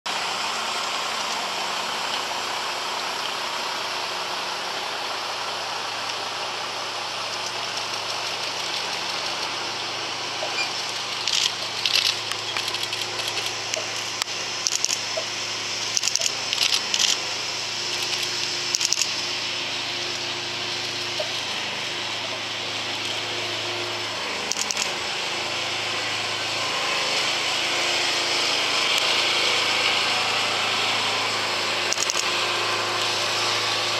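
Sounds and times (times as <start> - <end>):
road noise: 0.1 - 33.9
truck diesel engine running: 0.1 - 33.9
short high-pitched squeaks: 10.4 - 14.0.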